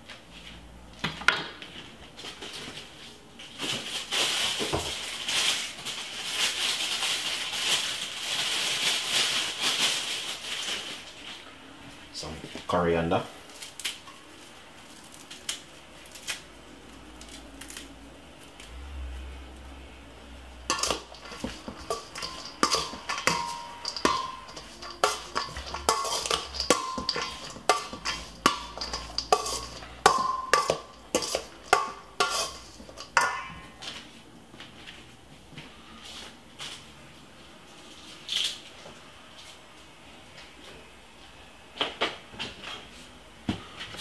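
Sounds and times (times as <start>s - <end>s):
metal spoon clinking in steel bowl: 20.7s - 33.8s.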